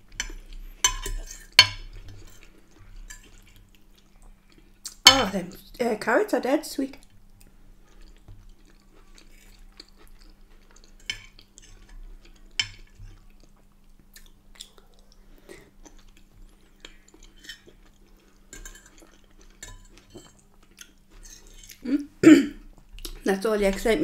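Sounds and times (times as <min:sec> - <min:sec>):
quiet chewing: 0:00.0 - 0:05.7, 0:07.0 - 0:23.8
cutlery clinking on plate: 0:00.2 - 0:02.5.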